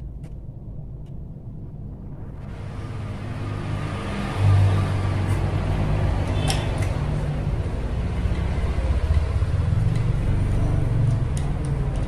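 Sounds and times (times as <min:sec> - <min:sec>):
small metallic clicks: 0:06.3 - 0:07.0, 0:10.9 - 0:12.0.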